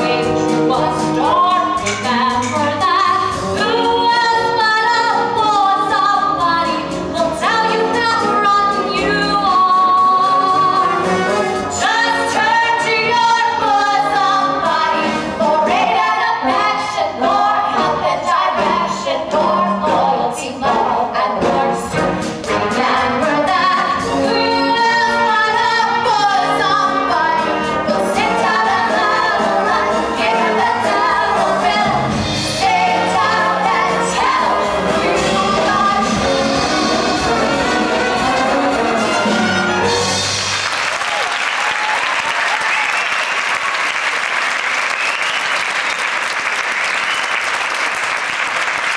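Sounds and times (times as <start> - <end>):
singers' voices: 0.0 - 40.1
pit orchestra with brass: 0.0 - 41.4
audience applause: 40.2 - 48.9.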